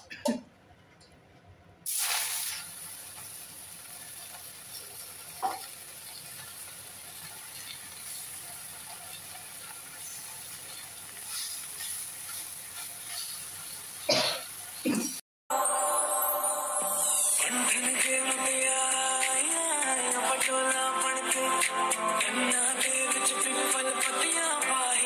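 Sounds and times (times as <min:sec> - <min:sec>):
greens sizzling in hot oil: 0:01.9 - 0:14.9.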